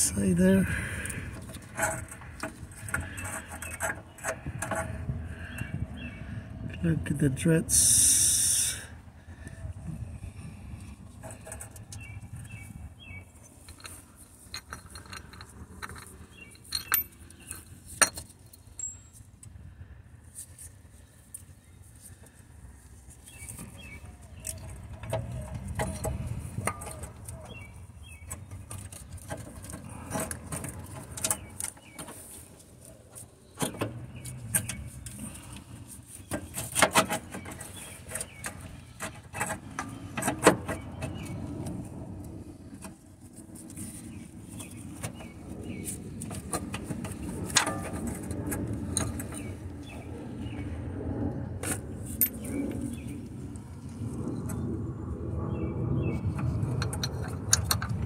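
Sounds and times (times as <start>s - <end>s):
metal clicks and clinks: 13.6s - 19.1s.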